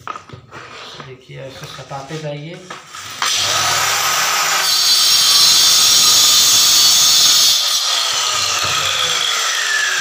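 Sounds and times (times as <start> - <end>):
marble cutter whining and grinding: 3.0 - 10.0.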